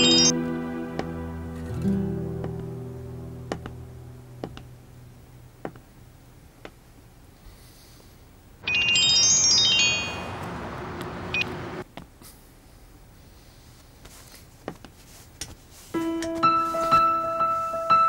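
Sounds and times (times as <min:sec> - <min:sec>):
descending high chime tones: 0:00.0 - 0:01.9, 0:08.6 - 0:10.4
sparse plucked notes: 0:00.0 - 0:05.2.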